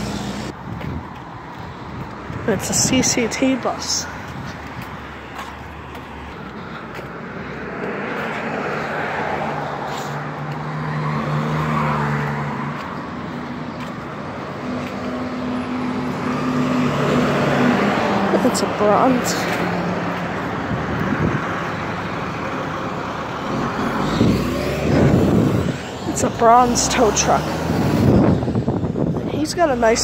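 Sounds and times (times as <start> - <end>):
heavy vehicle engine hum: 0.0 - 30.0
street traffic passing: 0.0 - 30.0.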